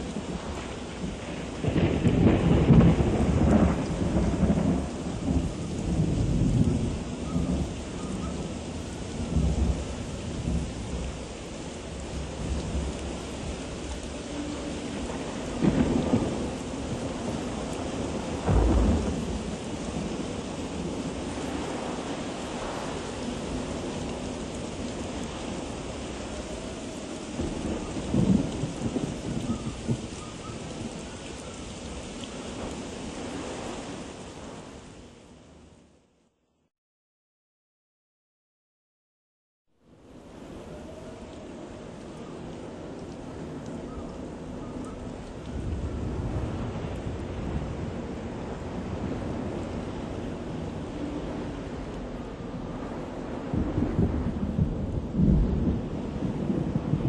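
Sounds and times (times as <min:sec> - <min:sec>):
heavy rain hiss: 0:00.0 - 0:35.6
wind buffeting microphone: 0:45.1 - 0:57.0.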